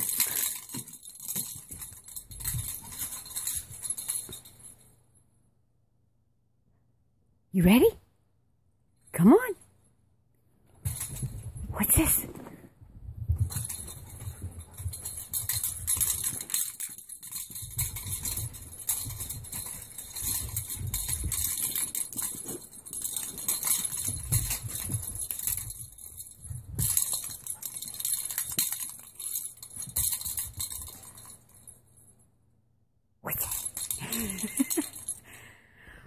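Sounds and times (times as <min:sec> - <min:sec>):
dog paws thumping on carpet: 0:10.6 - 0:31.6.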